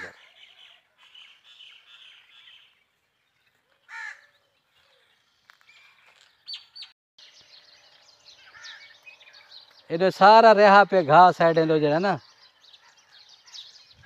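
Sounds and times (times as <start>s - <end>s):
faint birds chirping: 0.0s - 14.0s
crow cawing: 3.9s - 4.3s, 8.4s - 9.0s.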